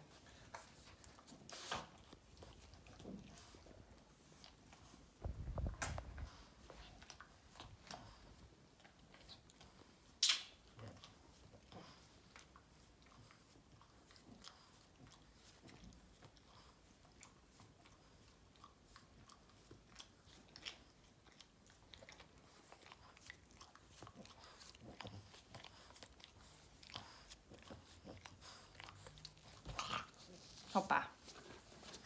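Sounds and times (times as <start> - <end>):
dog licking: 10.8 - 32.0.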